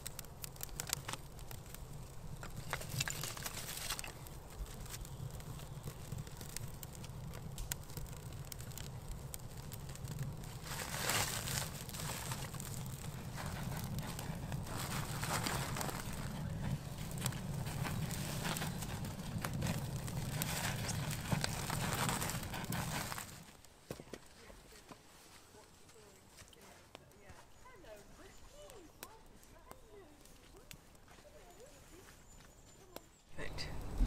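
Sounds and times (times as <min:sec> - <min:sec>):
stick fire crackling and popping: 0:00.0 - 0:31.2, 0:33.0 - 0:34.0
sticks rustling: 0:00.4 - 0:08.9, 0:09.6 - 0:23.6.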